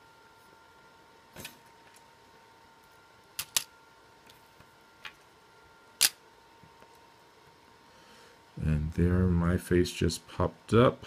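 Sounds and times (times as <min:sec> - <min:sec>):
faint high whine: 0:00.0 - 0:11.0.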